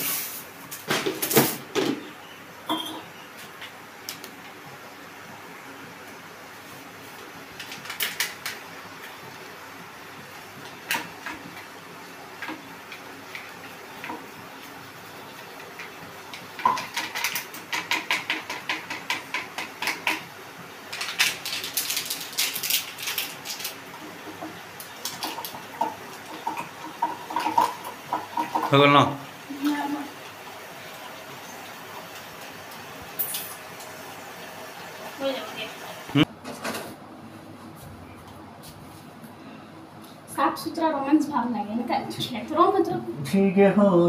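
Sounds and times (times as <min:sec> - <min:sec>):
plastic sachets crinkling: 0:20.9 - 0:24.0.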